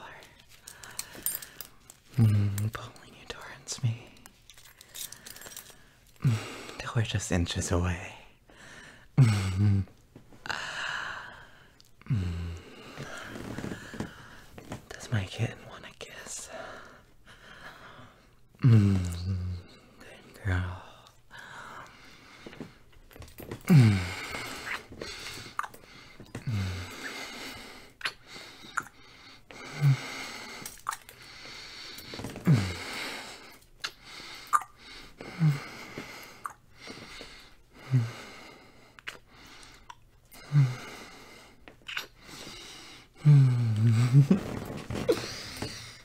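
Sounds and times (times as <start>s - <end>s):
man breathing: 0.0s - 2.8s, 3.9s - 6.9s, 8.3s - 14.7s, 16.3s - 46.0s
wet lip smacks: 30.8s - 31.0s.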